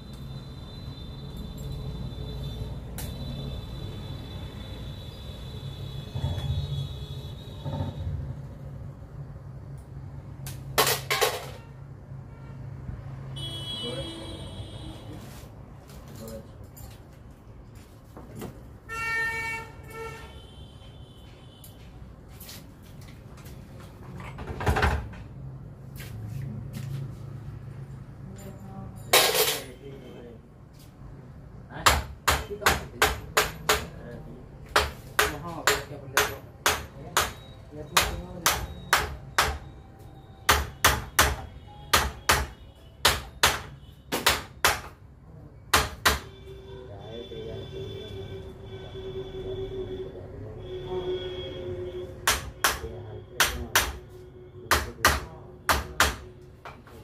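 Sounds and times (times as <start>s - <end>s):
hammer striking metal: 31.8s - 34.0s, 34.7s - 39.7s, 40.4s - 45.0s, 52.2s - 56.8s.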